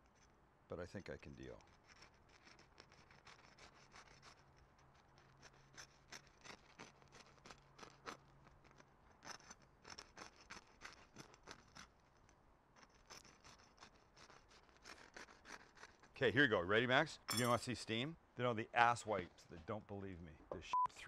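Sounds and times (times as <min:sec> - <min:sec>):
knife crunching through bread crust: 0:02.6 - 0:12.0.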